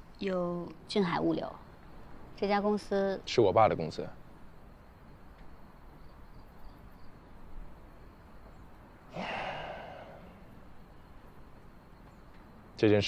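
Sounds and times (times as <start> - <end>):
faint low hum: 0.0 - 13.0
man sighing: 9.1 - 10.5.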